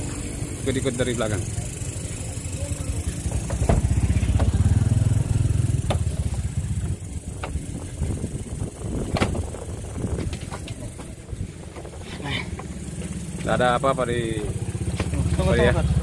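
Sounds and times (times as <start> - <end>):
vehicle engine rumbling: 0.0 - 16.0
knocks on car body and doors: 3.2 - 4.9, 5.6 - 7.7, 9.1 - 9.5.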